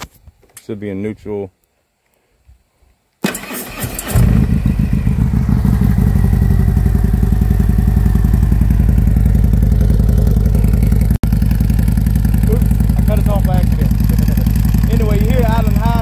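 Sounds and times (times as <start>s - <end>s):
motorcycle starter clattering: 3.2s - 5.0s
motorcycle engine starting and idling: 3.2s - 16.0s.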